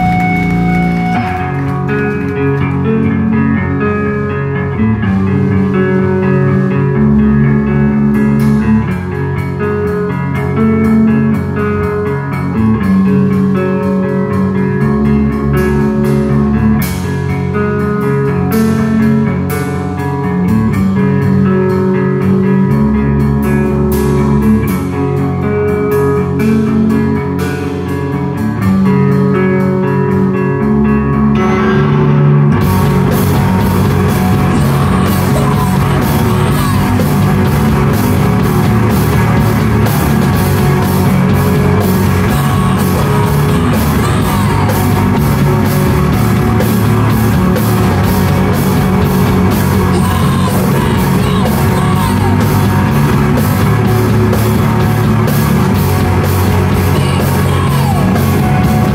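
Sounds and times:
guitar and bass notes: 0.0s - 58.9s
rock band playing: 0.0s - 58.9s
person yelling singing: 33.3s - 37.7s, 41.8s - 45.5s, 49.6s - 53.1s, 56.7s - 58.9s.

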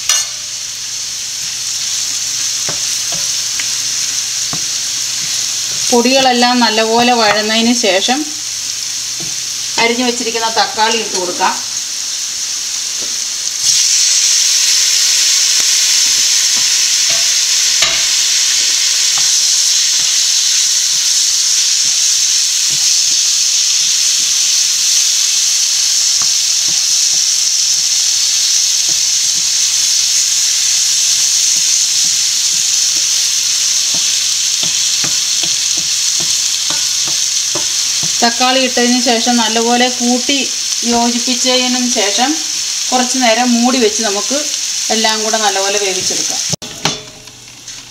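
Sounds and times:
tomatoes sizzling in hot oil: 0.0s - 47.9s
wooden spatula scraping pan: 33.9s - 38.2s.

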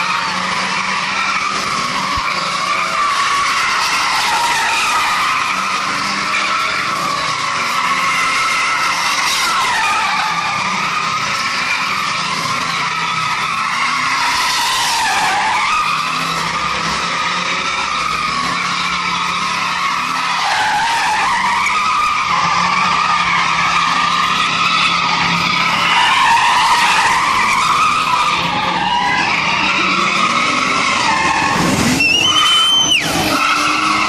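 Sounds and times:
car engine at high revs: 0.0s - 34.0s
tyres squealing: 0.0s - 34.0s
short high whistle-like tone: 32.0s - 33.1s.

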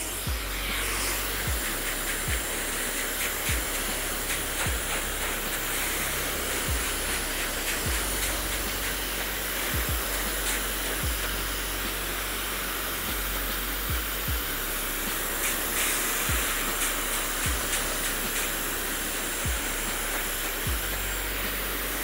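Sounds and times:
hair dryer blowing: 0.0s - 22.0s.

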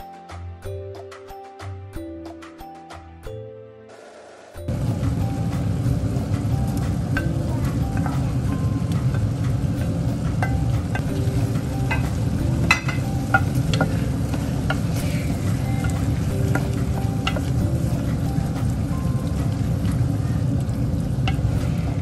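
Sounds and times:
tomato sauce simmering and sizzling: 4.7s - 22.0s
spatula stirring in a pan: 6.7s - 22.0s.

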